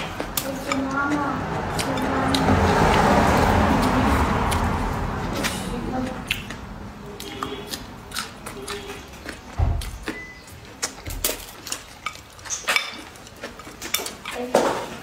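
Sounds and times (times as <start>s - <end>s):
wet chewing: 0.0s - 15.0s
mouth clicks: 5.4s - 11.4s.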